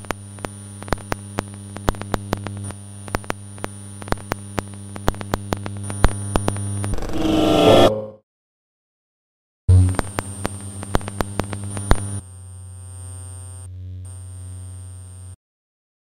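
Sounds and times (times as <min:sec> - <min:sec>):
thin high whine: 0:06.9 - 0:08.2.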